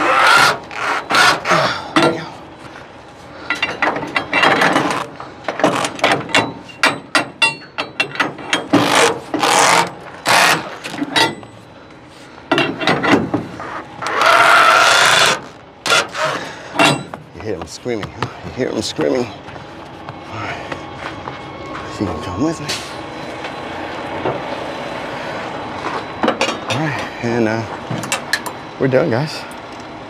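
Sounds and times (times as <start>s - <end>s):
rasping grinding strokes: 0.0s - 1.8s, 13.6s - 16.7s.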